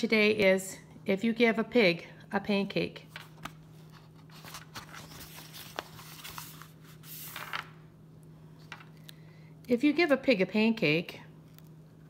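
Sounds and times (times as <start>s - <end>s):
faint steady hum: 0.0s - 12.0s
book pages turning: 3.1s - 7.8s.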